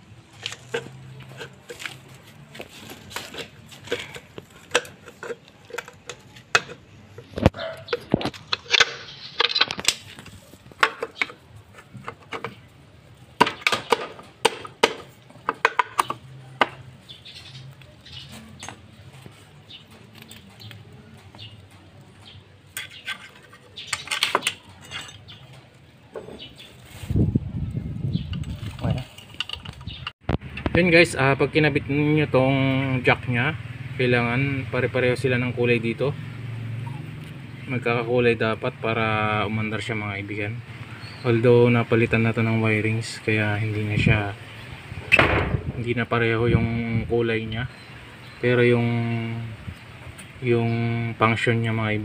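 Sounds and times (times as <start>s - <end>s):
metal tools clinking on engine: 0.4s - 12.7s, 22.7s - 26.5s.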